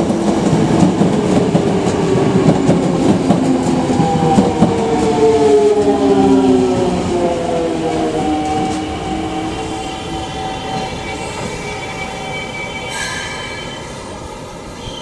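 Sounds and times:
train wheel rumble: 0.0 - 15.0
wheels and brakes squealing: 8.6 - 14.2, 14.8 - 15.0.

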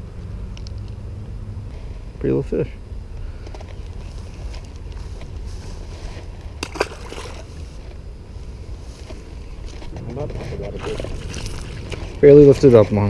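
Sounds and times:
fish splashing into water: 6.6 - 7.5
wind rumbling on microphone: 7.2 - 13.0.

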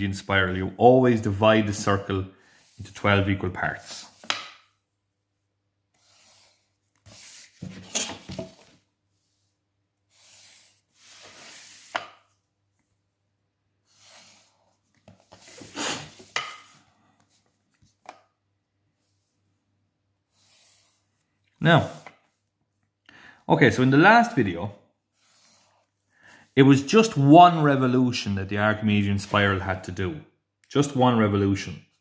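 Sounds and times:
pencil scraping on paper: 6.0 - 8.1.

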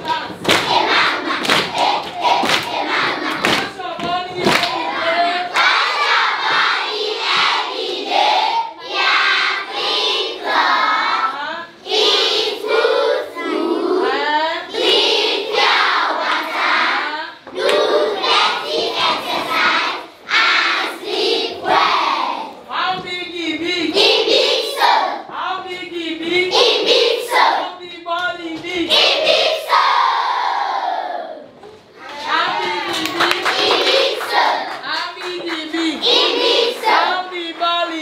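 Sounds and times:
children singing together: 0.0 - 3.8, 4.4 - 22.6, 23.9 - 25.3, 26.5 - 27.6, 33.4 - 34.8, 35.8 - 37.3
hand clapping: 0.0 - 4.8, 32.2 - 38.0.

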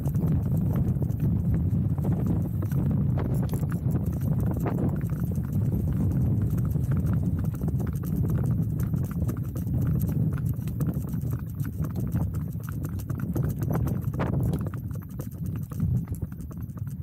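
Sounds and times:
low rumble: 0.0 - 12.7
horse hooves on concrete: 0.0 - 17.0.

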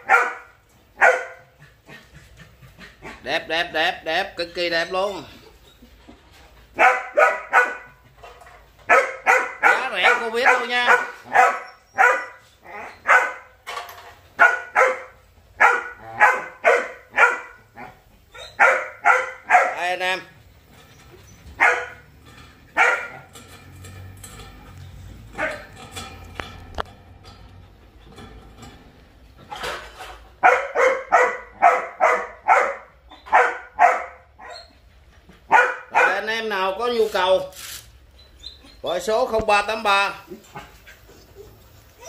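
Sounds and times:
puppies barking: 0.0 - 2.1, 6.6 - 8.1, 8.8 - 13.6, 14.3 - 19.8, 20.9 - 23.5, 25.2 - 26.0, 30.4 - 36.5.

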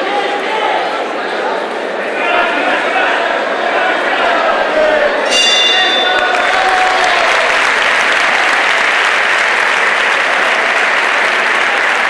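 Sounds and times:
crowd applauding: 4.4 - 12.0.

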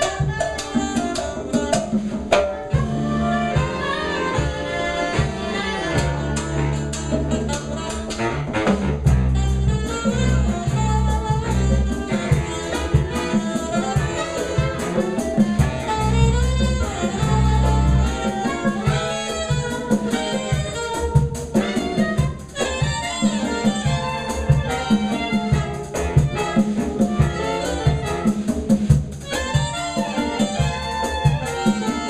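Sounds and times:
drum kit beat: 0.0 - 32.0
saxophones playing melody: 0.0 - 32.0
low bass notes: 2.8 - 13.3, 14.0 - 18.4.

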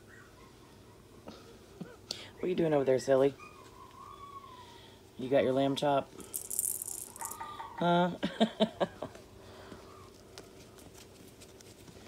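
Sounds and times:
handling rustle: 10.1 - 12.0.

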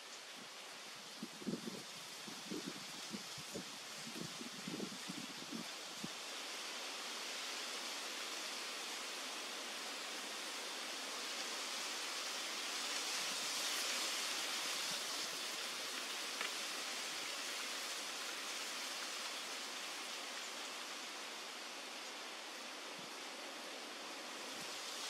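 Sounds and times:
steady outdoor hiss: 0.0 - 25.0
faint tick: 16.4 - 16.6.

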